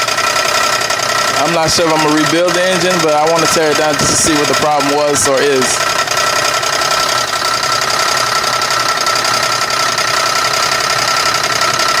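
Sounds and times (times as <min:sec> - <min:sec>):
car engine running: 0:00.0 - 0:12.0
engine knocking: 0:00.0 - 0:12.0.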